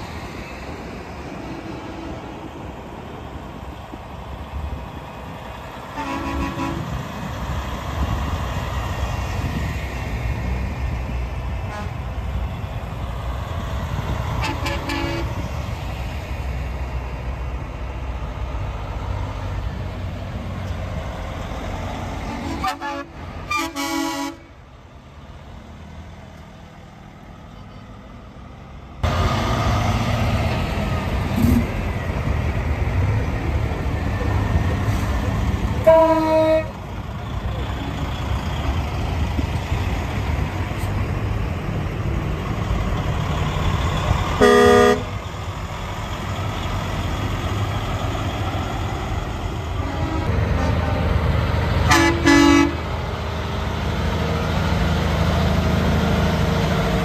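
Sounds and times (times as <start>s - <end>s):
truck engines rumbling: 0.0s - 57.0s
truck horn blasts: 5.9s - 7.0s, 11.6s - 12.1s, 14.3s - 15.4s, 22.3s - 24.5s, 35.8s - 36.8s, 44.4s - 45.2s, 49.8s - 51.2s, 51.8s - 52.9s.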